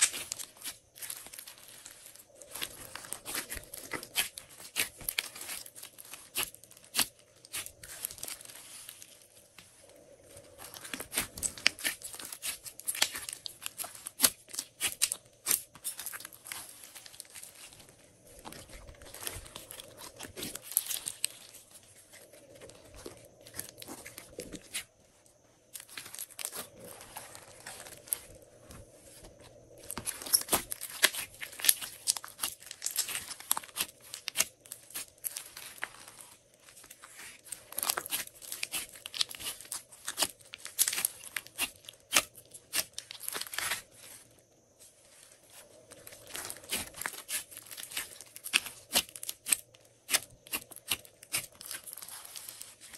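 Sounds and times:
hands squeezing sticky slime: 30.0 - 36.3, 46.2 - 52.9.

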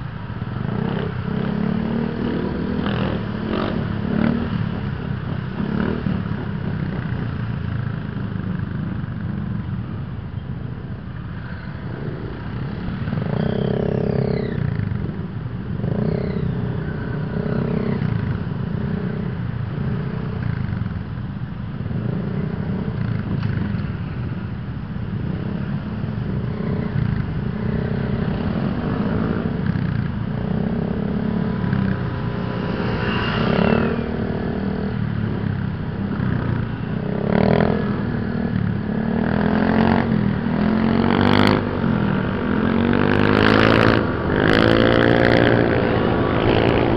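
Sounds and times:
motorcycles accelerating: 0.0 - 10.0, 11.2 - 46.9
wind and road rush: 0.0 - 46.9
scooter engine drone: 24.2 - 46.9.

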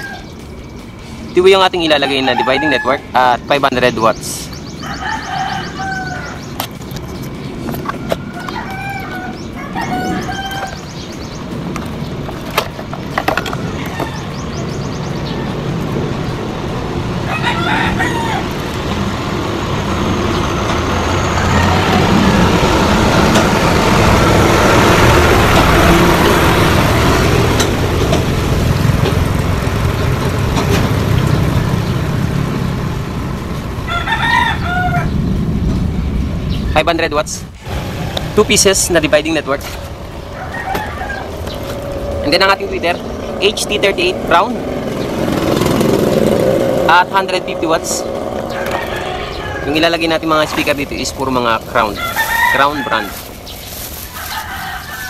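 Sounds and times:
rooster crowing: 0.0 - 0.4, 1.8 - 3.4, 4.7 - 6.5, 7.8 - 11.1, 13.5 - 14.5, 17.1 - 19.0, 19.8 - 27.5, 33.7 - 35.2, 40.1 - 42.5, 48.1 - 51.1, 51.8 - 53.4, 54.0 - 55.0
loud rushing noise: 9.3 - 55.0.

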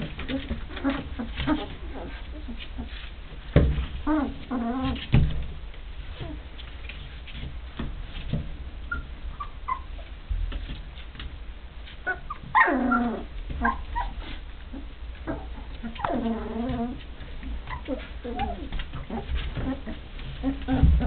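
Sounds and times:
paws scratching on wooden floor: 0.0 - 21.0
puppies squeaking and whimpering: 0.1 - 3.0, 4.0 - 5.2, 8.8 - 10.2, 12.0 - 21.0
puppy whining cry: 0.3 - 2.9, 4.0 - 5.0, 8.9 - 10.1, 12.0 - 17.0, 17.6 - 21.0.

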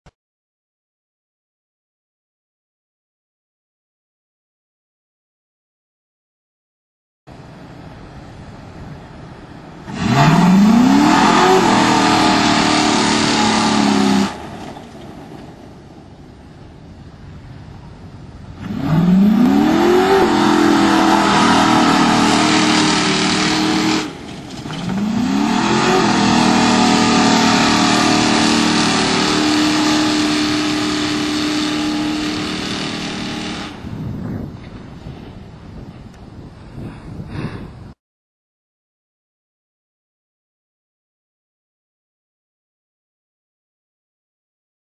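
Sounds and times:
car engine revving: 9.7 - 15.4, 18.6 - 33.9.

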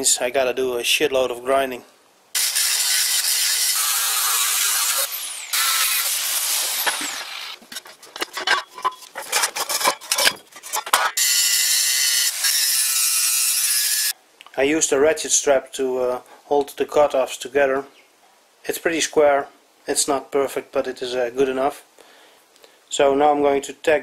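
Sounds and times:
angle grinder grinding steel: 2.4 - 14.1.

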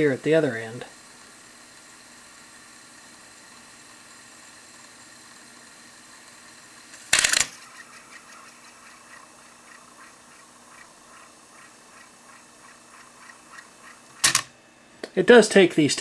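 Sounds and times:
cassette deck mechanism whirring: 6.4 - 10.9, 11.9 - 14.6
mechanical clack: 7.0 - 7.8, 14.2 - 14.5
faint ticking: 7.6 - 14.3.

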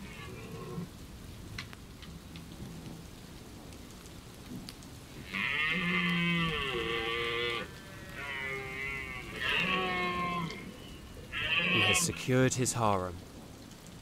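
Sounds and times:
deer stag roaring: 0.0 - 0.9, 5.2 - 12.2.

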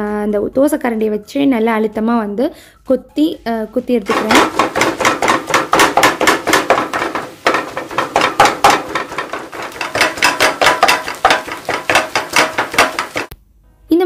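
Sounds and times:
spatula knocking on frying pan: 4.1 - 13.4.

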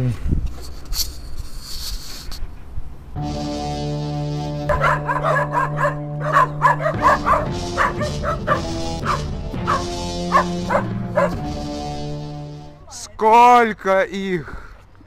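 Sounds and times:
background music with held notes: 3.2 - 13.1
dogs barking: 4.7 - 11.5.

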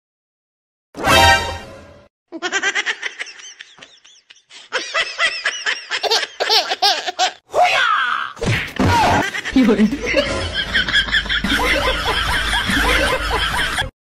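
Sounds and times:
person laughing: 2.3 - 7.4, 8.9 - 13.9.

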